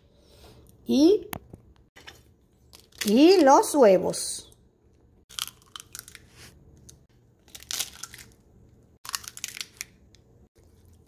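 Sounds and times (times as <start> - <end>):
eggshells cracking: 5.3 - 6.3, 7.4 - 8.4, 9.0 - 10.2.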